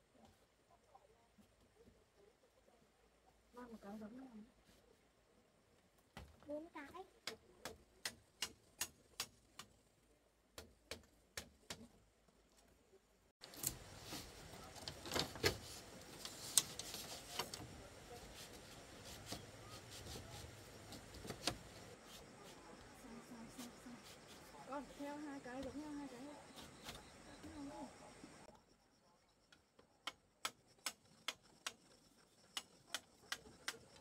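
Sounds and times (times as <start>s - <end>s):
background hiss: 12.2s - 28.5s.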